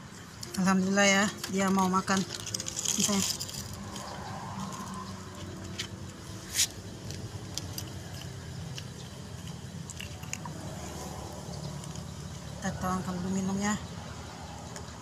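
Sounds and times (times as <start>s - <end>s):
cat crunching dry kibble: 1.3s - 5.6s, 6.6s - 12.2s.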